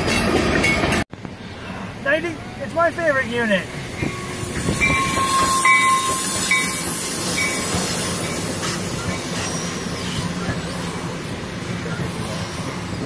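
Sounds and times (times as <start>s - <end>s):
train wheels clattering on rails: 3.9s - 13.0s
short high ringing tone: 4.1s - 6.8s.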